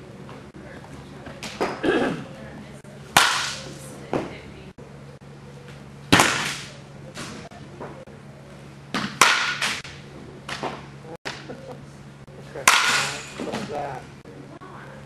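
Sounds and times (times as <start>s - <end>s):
bat cracking softball: 3.1s - 3.7s, 6.1s - 7.5s, 8.9s - 11.5s, 12.6s - 13.7s.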